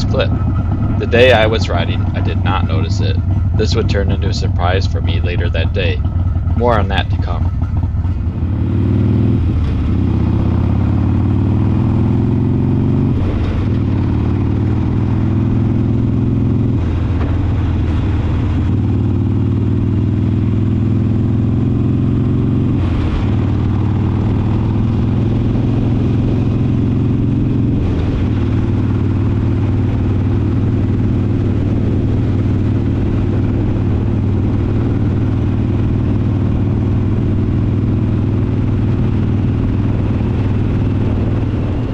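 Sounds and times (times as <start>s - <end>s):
motorcycle accelerating through gears: 0.0s - 41.9s.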